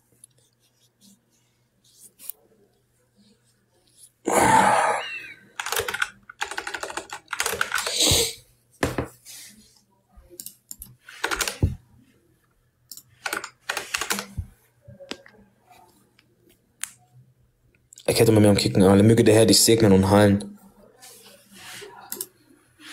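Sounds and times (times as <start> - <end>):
typing on keyboard: 5.6 - 8.0, 10.4 - 11.8, 12.9 - 14.4.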